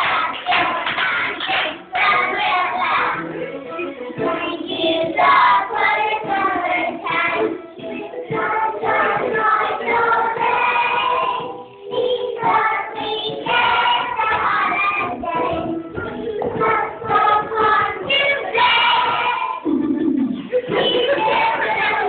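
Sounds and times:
children singing: 0:00.0 - 0:03.4, 0:04.1 - 0:19.7, 0:20.5 - 0:22.0.

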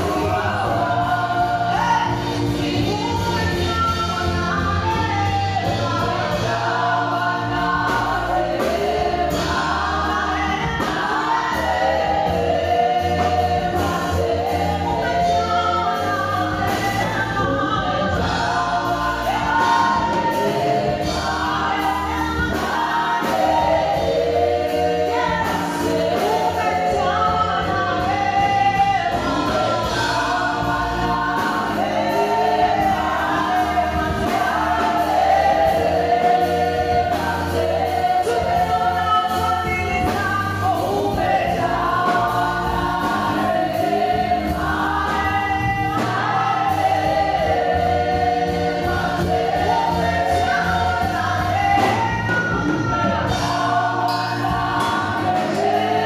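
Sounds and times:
group singing gospel song: 0:00.0 - 0:56.0.

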